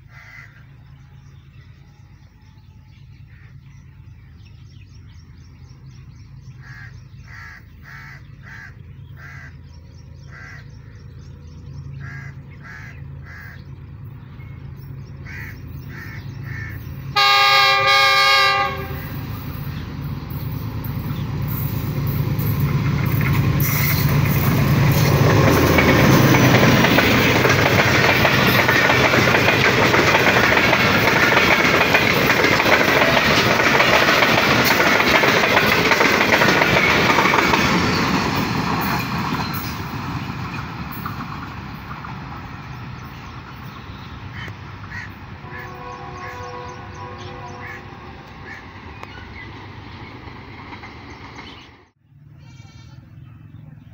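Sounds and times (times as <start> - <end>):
train engine drone: 0.0 - 52.3
train horn blast: 16.5 - 19.4, 45.0 - 48.7
train wheels clattering on rails: 18.5 - 46.5.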